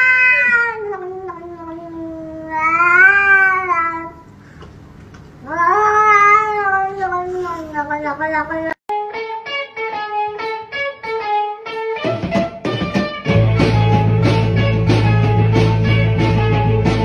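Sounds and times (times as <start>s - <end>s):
guitar picking single notes: 8.9s - 17.0s
band playing: 9.0s - 17.0s
bass line: 13.3s - 17.0s.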